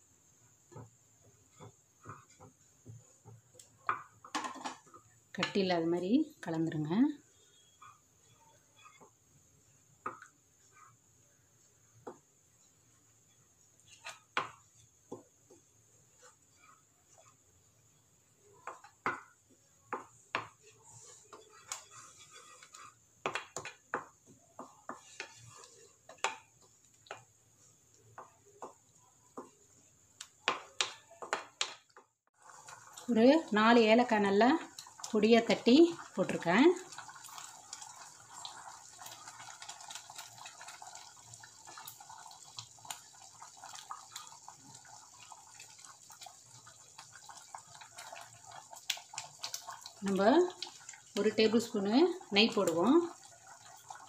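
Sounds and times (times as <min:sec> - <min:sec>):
syrup bubbling in a pan: 0:00.0 - 0:54.0
wooden spatula stirring: 0:00.3 - 0:54.0
wooden spatula scraping metal pot: 0:13.8 - 0:15.2, 0:16.1 - 0:17.5, 0:20.0 - 0:26.7.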